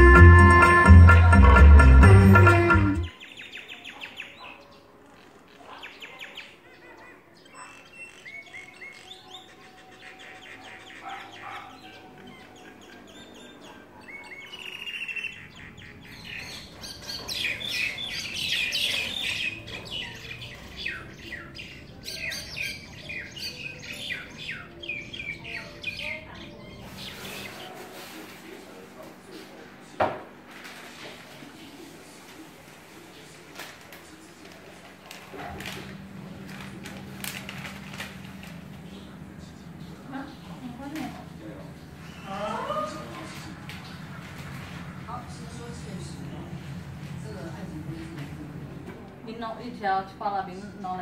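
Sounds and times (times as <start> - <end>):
birds chirping and whistling: 7.4 - 27.8, 41.8 - 44.8.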